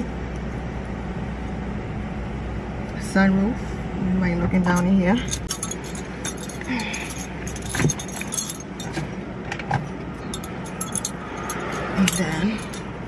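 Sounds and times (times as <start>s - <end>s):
metallic jingling and clicking: 4.7s - 9.2s, 9.8s - 13.0s.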